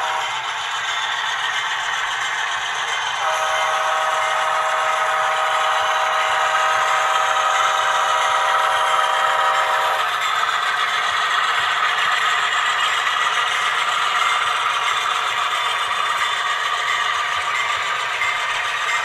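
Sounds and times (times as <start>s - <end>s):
model train rolling on track: 0.0s - 19.0s
model train horn chord: 3.2s - 10.0s.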